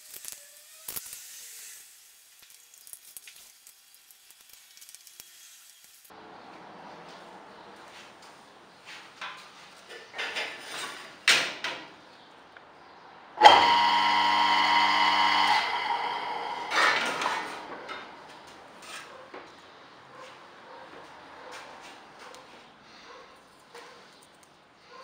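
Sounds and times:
electric motor humming: 13.4s - 18.5s.

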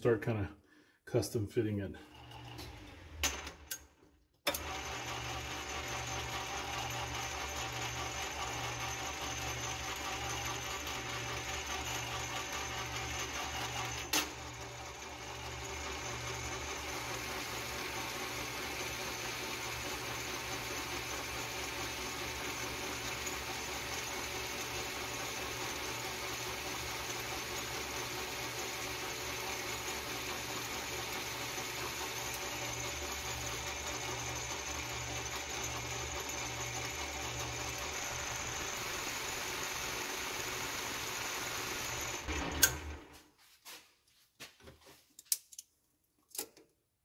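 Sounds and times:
metal lathe humming: 4.5s - 43.0s.

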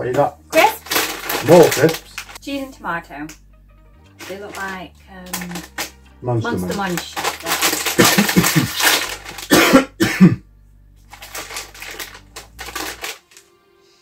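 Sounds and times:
plastic packet crinkling: 0.5s - 2.5s, 4.2s - 9.8s, 11.1s - 13.4s
man coughing: 7.9s - 10.4s.

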